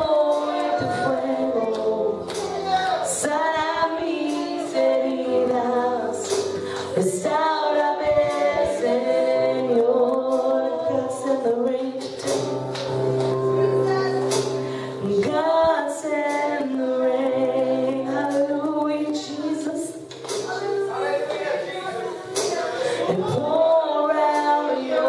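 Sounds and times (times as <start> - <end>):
group singing a worship song: 0.0 - 13.2, 14.4 - 25.0.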